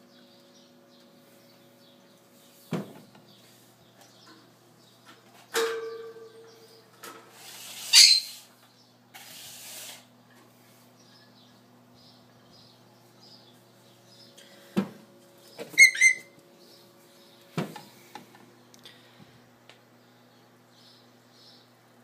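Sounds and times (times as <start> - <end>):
scrape with squeak: 7.3 - 8.5, 9.2 - 10.1.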